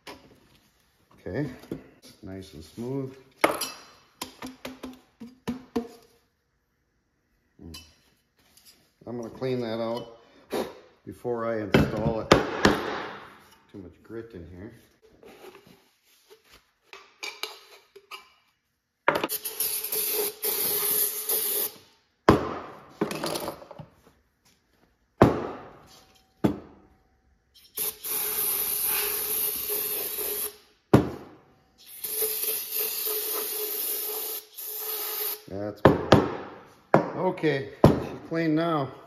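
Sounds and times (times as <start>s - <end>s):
aerosol spray hissing: 27.8s - 30.6s, 32.0s - 35.5s.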